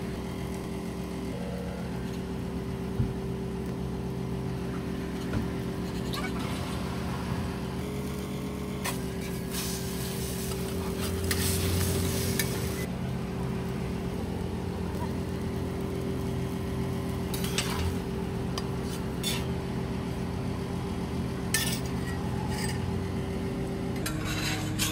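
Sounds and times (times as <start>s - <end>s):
steady mechanical hum: 0.0s - 24.9s
metal spatula scraping griddle: 5.1s - 6.8s, 8.8s - 12.9s, 17.3s - 18.0s, 18.8s - 19.6s, 21.5s - 23.0s, 24.0s - 24.9s
food sizzling on a griddle: 8.8s - 12.9s.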